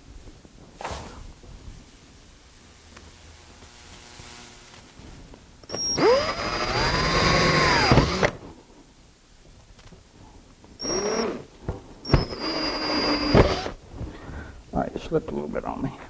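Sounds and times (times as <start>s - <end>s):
cordless drill motor whining: 5.7s - 8.4s, 10.8s - 13.8s.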